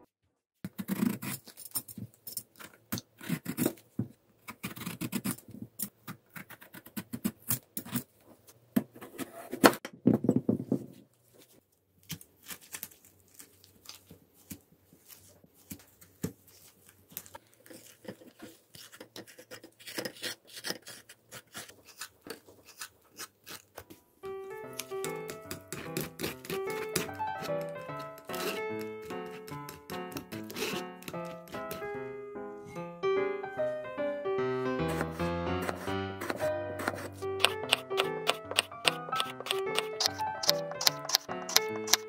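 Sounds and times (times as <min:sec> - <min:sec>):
peeler scraping rind: 0:00.7 - 0:01.9, 0:12.1 - 0:23.8, 0:24.6 - 0:31.8, 0:34.8 - 0:42.0
spoon scraping seeds: 0:16.6 - 0:23.8, 0:24.8 - 0:31.7, 0:34.9 - 0:42.0.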